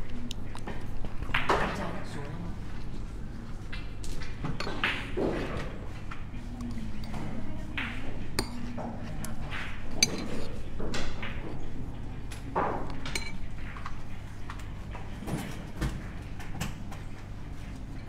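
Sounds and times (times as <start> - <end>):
pool balls clicking: 3.6 - 17.7.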